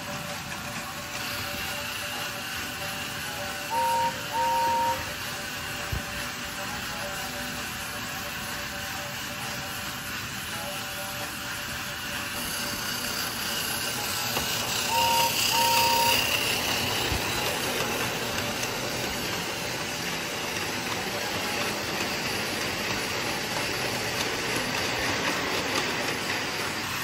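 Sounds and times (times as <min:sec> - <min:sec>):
toy train motor whirring: 0:00.0 - 0:27.0
two-part tone: 0:03.7 - 0:05.1, 0:14.9 - 0:16.4.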